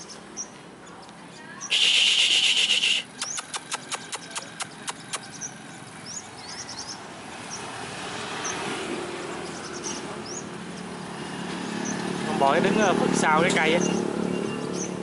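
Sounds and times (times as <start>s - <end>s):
road traffic noise: 0.0s - 15.0s
small birds chirping: 0.0s - 15.0s
sharp ticks: 1.7s - 5.4s.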